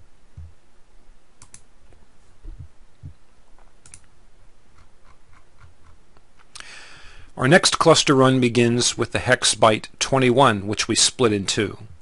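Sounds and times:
soft low thumps: 0:00.3 - 0:00.6, 0:02.4 - 0:03.2
sharp computer clicks: 0:01.4 - 0:01.7, 0:03.8 - 0:04.1.

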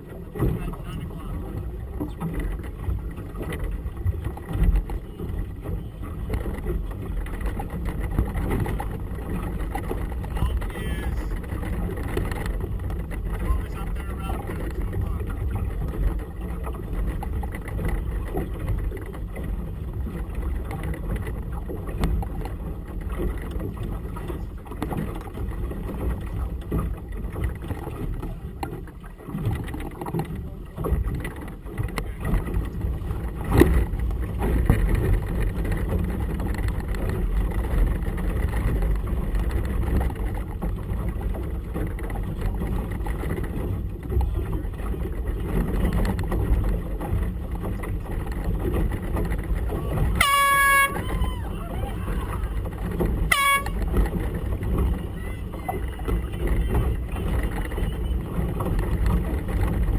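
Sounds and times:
choppy water around boat: 0:00.0 - 0:59.9
wind rumble: 0:00.0 - 0:59.9
air horn blast: 0:50.1 - 0:51.5, 0:53.3 - 0:53.9.

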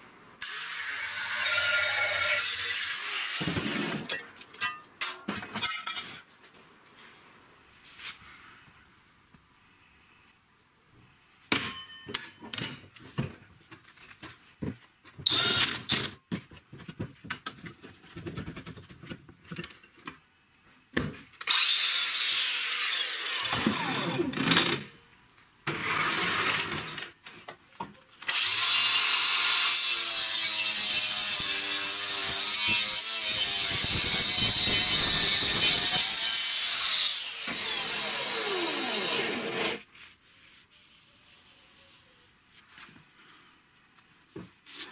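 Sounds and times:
grinder cutting through board: 0:00.4 - 0:04.1, 0:21.4 - 0:24.9, 0:25.7 - 0:27.0, 0:28.2 - 0:39.9.

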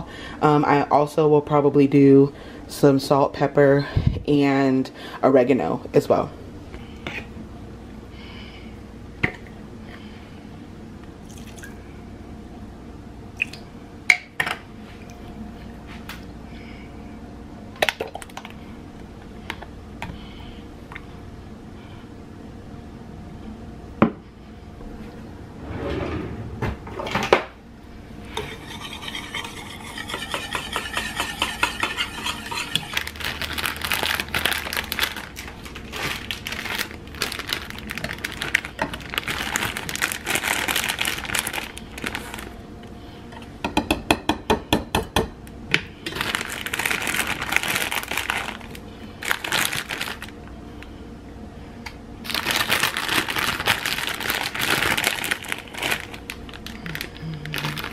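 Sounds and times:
whisk clinking against bowl: 0:28.4 - 0:32.9
plastic bag crinkling: 0:32.8 - 0:42.6, 0:46.1 - 0:50.4, 0:52.2 - 0:57.9.

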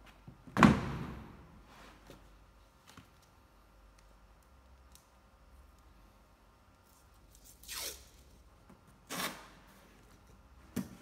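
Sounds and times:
masking tape ripping off roll: 0:07.3 - 0:08.3.

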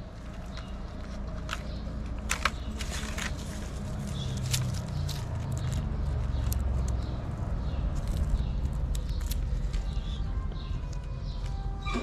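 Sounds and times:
hands rustling plastic bag: 0:00.2 - 0:05.9.

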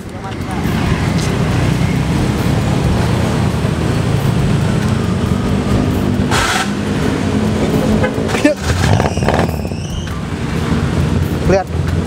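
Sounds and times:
minibus engine idling: 0:00.0 - 0:08.6.

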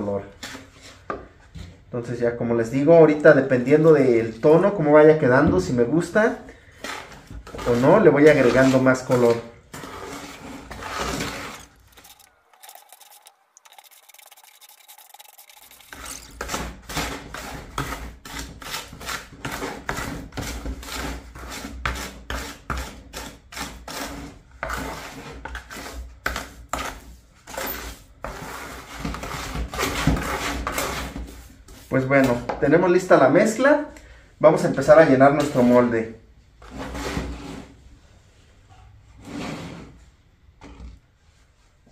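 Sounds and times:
tool scraping wet paste: 0:06.6 - 0:32.5, 0:36.6 - 0:37.8.

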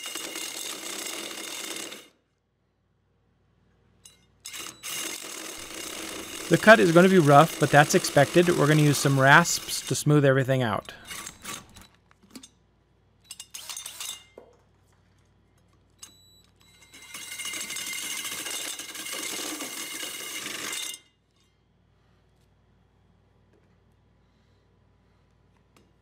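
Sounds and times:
hole saw cutting through plywood: 0:04.9 - 0:11.8.

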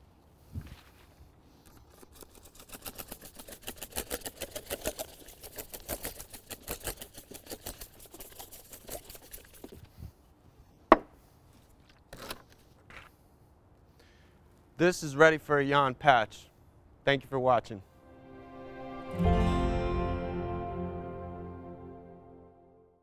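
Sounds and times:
stiff brush scrubbing stone: 0:01.6 - 0:10.0.

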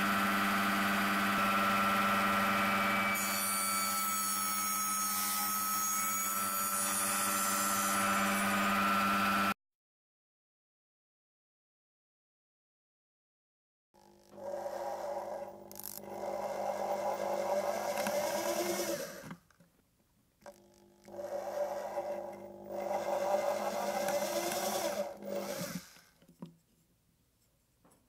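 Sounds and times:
electric drill boring into wood: 0:00.0 - 0:05.6, 0:06.3 - 0:09.6, 0:14.0 - 0:19.4, 0:20.7 - 0:26.2.

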